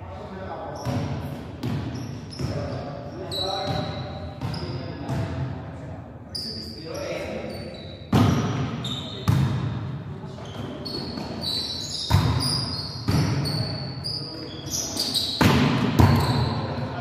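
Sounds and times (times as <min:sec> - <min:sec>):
sneakers squeaking on floor: 0:00.6 - 0:05.5, 0:06.3 - 0:17.0
volleyball smacks echoing: 0:15.4 - 0:16.5.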